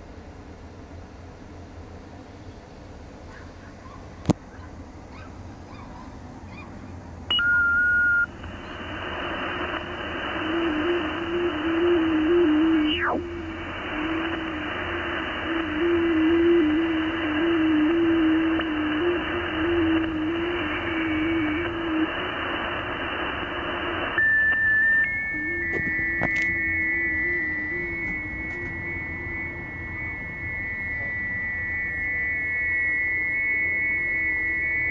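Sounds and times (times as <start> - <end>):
radio band noise hiss: 1.5 - 34.9
short steady beep: 7.3 - 8.3, 24.2 - 34.9
warbling digital radio signal: 7.5 - 34.9.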